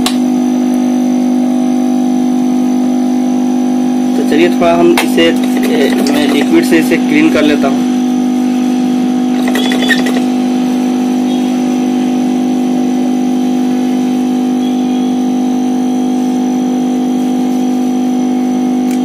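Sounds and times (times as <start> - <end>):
electric machine humming: 0.0 - 19.0.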